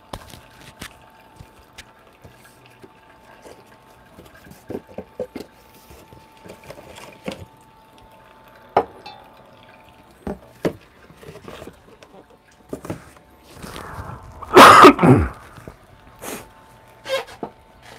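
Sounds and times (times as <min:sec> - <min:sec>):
coffee machine hum: 0:00.0 - 0:17.9
coffee dripping into carafe: 0:06.3 - 0:11.0
water pouring onto coffee grounds: 0:13.4 - 0:16.2.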